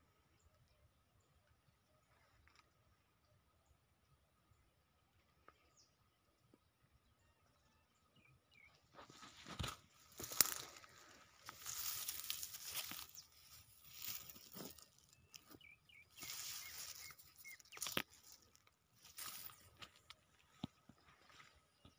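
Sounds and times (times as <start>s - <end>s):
rice plants rustling: 9.0s - 20.5s.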